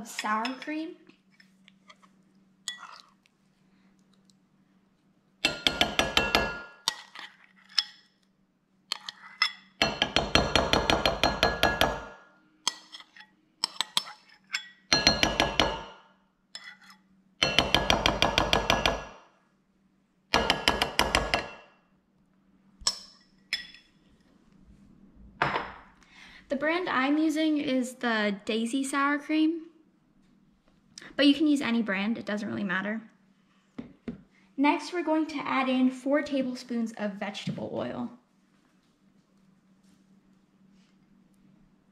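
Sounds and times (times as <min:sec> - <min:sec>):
spoon scraping glass bowl: 0:01.4 - 0:03.2, 0:05.5 - 0:08.1, 0:08.9 - 0:10.1, 0:12.7 - 0:15.2, 0:16.6 - 0:17.8.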